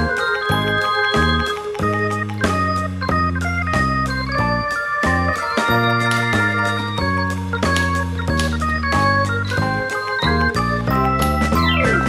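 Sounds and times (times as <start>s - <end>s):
keyboard tune with bass line: 0.0s - 12.0s.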